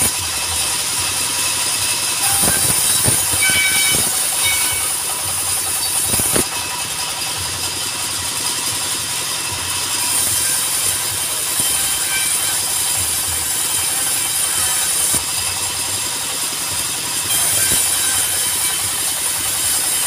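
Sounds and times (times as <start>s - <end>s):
engine rumble: 0.0s - 20.0s
saw hissing: 0.0s - 20.0s.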